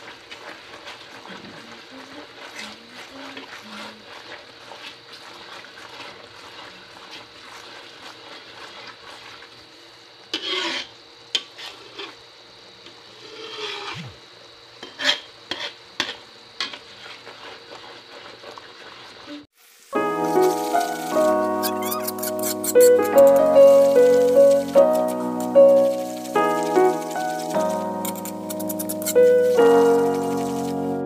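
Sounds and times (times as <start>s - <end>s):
steady sizzle: 0.0s - 31.0s
metal ladle scraping pan: 10.3s - 12.2s, 13.2s - 14.0s, 20.2s - 30.6s.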